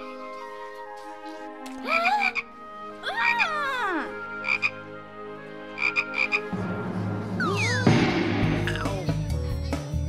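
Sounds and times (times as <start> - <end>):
cartoon frog croaking: 3.2 - 3.5, 4.4 - 4.8, 5.8 - 6.5.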